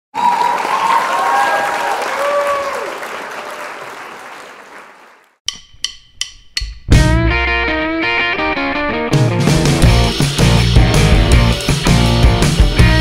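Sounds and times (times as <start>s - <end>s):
audience applauding and cheering: 0.1s - 5.4s.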